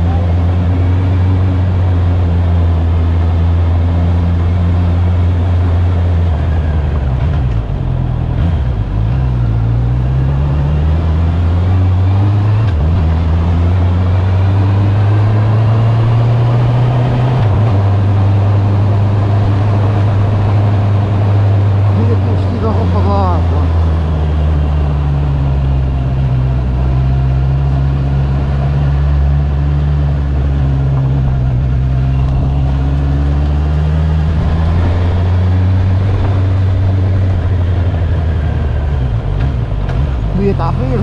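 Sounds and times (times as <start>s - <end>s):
motorcycle engine running: 11.9s - 41.0s.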